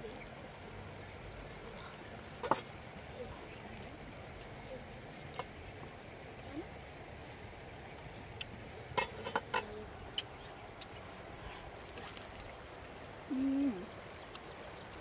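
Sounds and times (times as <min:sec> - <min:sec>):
person humming while chewing: 0:13.3 - 0:13.9.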